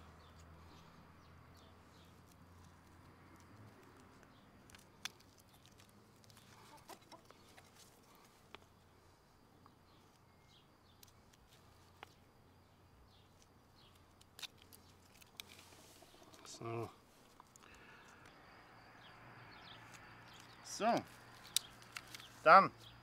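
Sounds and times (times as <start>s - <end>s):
small scissors snipping tape: 1.9s - 6.5s, 13.4s - 15.5s, 21.3s - 22.3s.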